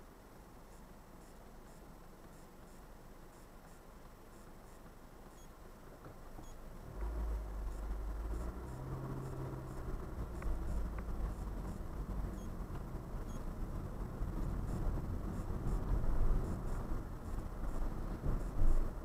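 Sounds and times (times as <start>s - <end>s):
car engine and tyres rumbling: 0.0s - 19.0s.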